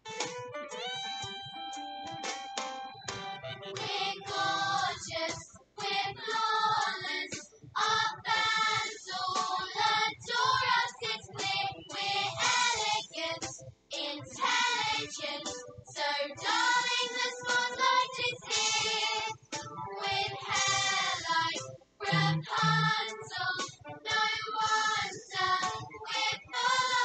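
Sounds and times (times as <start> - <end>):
children's choir singing with accompaniment: 3.7 - 27.0.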